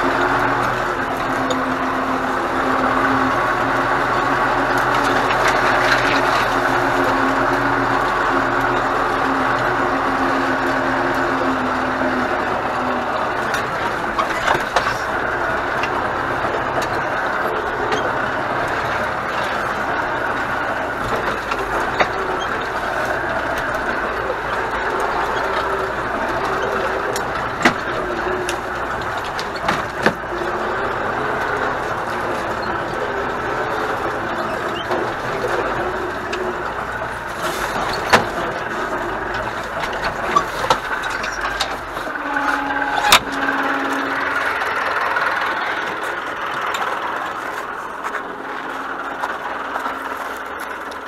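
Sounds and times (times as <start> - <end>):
cab and loader rattle: 0.0 - 51.0
tractor diesel engine running: 0.0 - 51.0.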